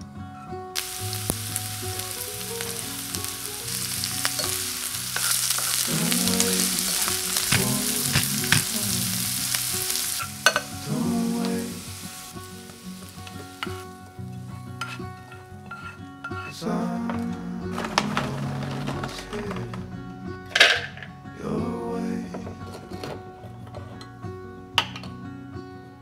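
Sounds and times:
onion sizzling in oil: 0:00.8 - 0:16.5.

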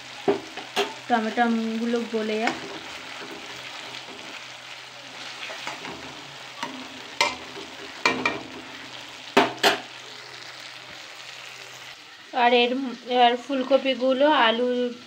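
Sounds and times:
vegetables sizzling in oil: 0:00.0 - 0:15.0
spatula stirring and scraping: 0:05.2 - 0:08.9
spatula clacking against pan: 0:06.6 - 0:08.6.

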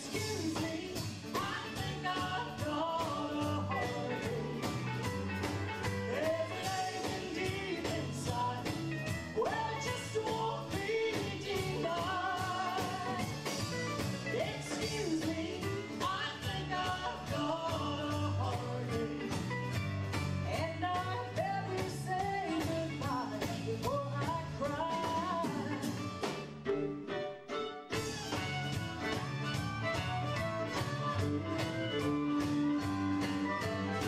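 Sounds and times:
woman singing lead: 0:00.0 - 0:19.8, 0:20.4 - 0:27.2
live country band playing: 0:00.0 - 0:34.0
man singing harmony: 0:06.1 - 0:13.4
fiddle playing: 0:26.6 - 0:34.0.

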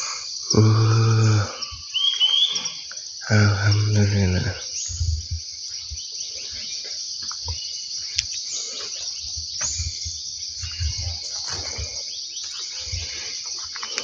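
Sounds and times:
high-pitched insect chorus: 0:00.0 - 0:14.0
footsteps through undergrowth: 0:06.4 - 0:14.0.

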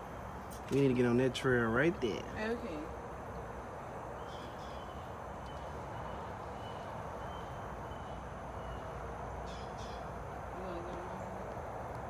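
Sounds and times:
outdoor hiss with low rumble: 0:00.0 - 0:12.0.

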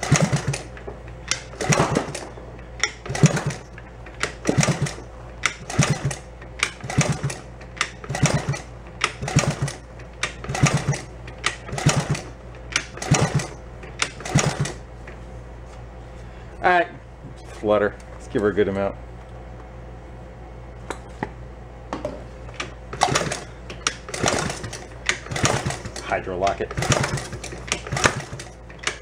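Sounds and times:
small engine kicked over without firing: 0:01.5 - 0:02.3, 0:03.1 - 0:03.7, 0:04.3 - 0:05.0, 0:24.1 - 0:26.1, 0:26.7 - 0:28.5.

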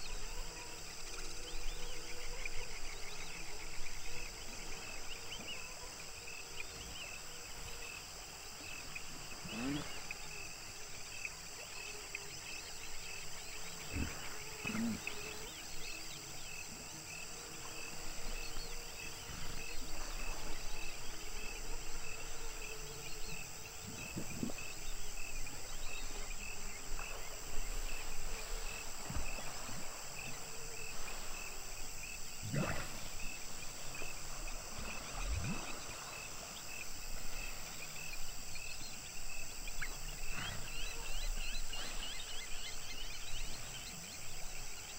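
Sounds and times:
hippos grunting: 0:09.4 - 0:10.1, 0:13.8 - 0:15.4, 0:32.4 - 0:33.6.

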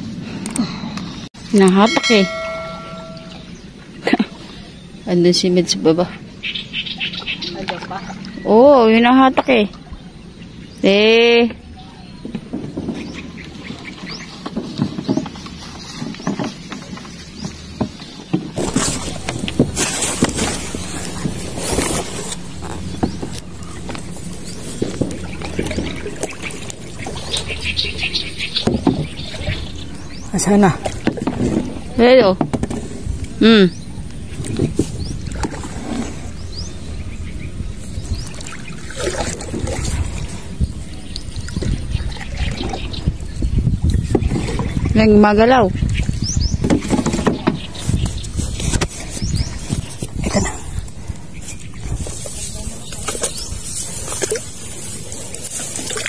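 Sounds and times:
grass and clothing rustling: 0:12.6 - 0:56.0
water sloshing: 0:13.2 - 0:46.2, 0:46.8 - 0:56.0
steady low rumble: 0:18.6 - 0:45.0, 0:47.9 - 0:56.0
small knocks on canoe: 0:22.6 - 0:29.9, 0:46.6 - 0:48.2.

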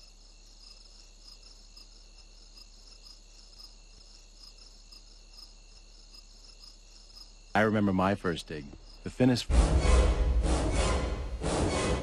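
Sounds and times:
crickets chirping: 0:00.0 - 0:09.5.

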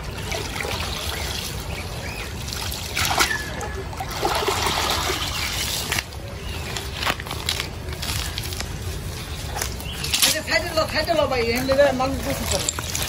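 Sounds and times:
water trickling and splashing: 0:00.0 - 0:13.0.

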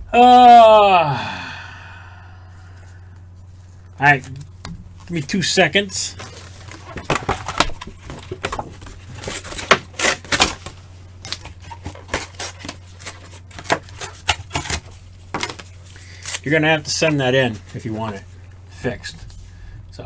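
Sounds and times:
low hum: 0:00.0 - 0:20.0.

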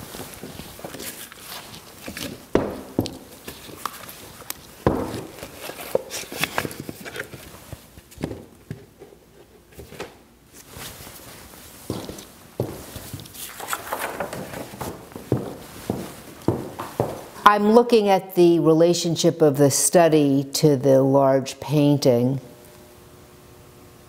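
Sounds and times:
paper rustling: 0:00.0 - 0:08.3, 0:09.6 - 0:16.2
footsteps on wooden floor: 0:02.1 - 0:03.7, 0:04.8 - 0:05.5, 0:10.8 - 0:17.6.

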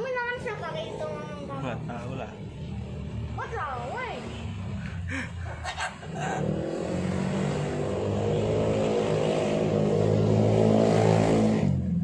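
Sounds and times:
engine running and revving: 0:06.0 - 0:12.0.

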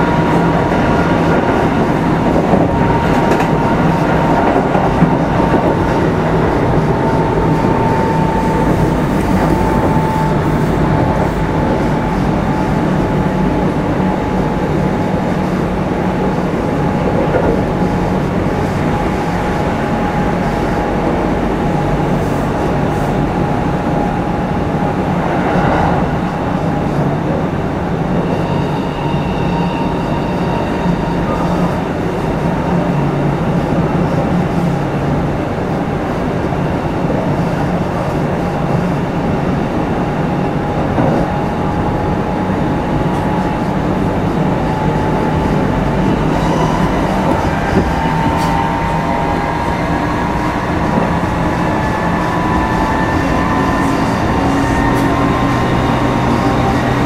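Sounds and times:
train wheels rumbling on rails: 0:00.0 - 0:57.0
train motor whine: 0:40.6 - 0:57.0.

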